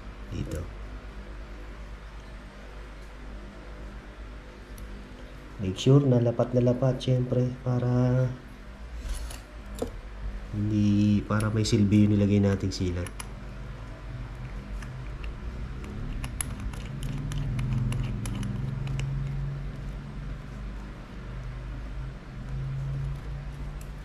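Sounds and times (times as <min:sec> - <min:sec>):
low steady hum: 0:00.0 - 0:24.0
metal watch clicks: 0:14.8 - 0:19.4.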